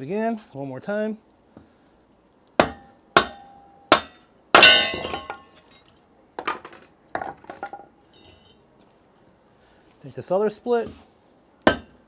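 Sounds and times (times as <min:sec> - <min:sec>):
axe striking metal wedge: 0:02.6 - 0:05.6, 0:11.7 - 0:12.0.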